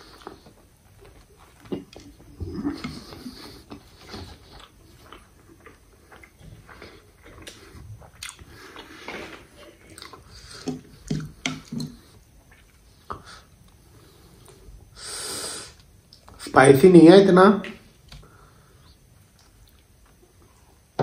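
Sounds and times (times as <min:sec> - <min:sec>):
person chewing wetly: 0:00.0 - 0:13.2.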